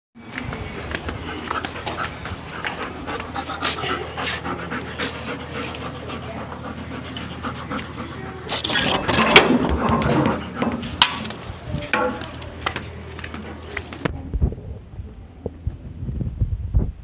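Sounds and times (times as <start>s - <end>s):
dog panting rapidly: 1.1s - 8.7s.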